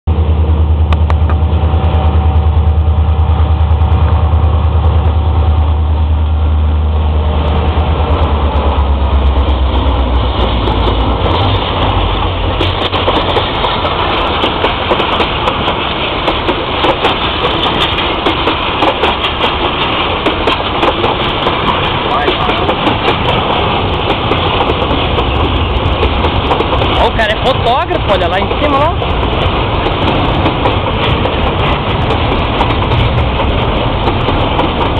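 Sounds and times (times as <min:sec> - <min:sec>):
diesel locomotive engine drone: 0:00.0 - 0:34.9
freight car wheels rattling: 0:09.4 - 0:34.9.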